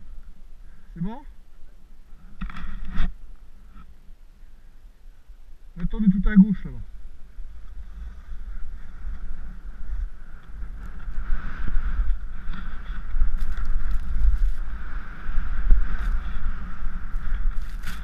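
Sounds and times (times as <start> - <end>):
wind rushing over microphone: 6.8 - 18.0
skis hissing through snow: 11.2 - 18.0.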